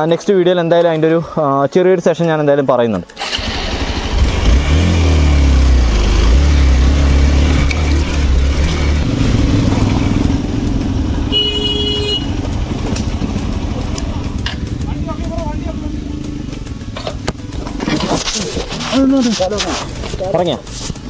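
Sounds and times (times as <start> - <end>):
motorcycle engine revving: 3.2 - 20.3
short horn toot: 11.3 - 12.3.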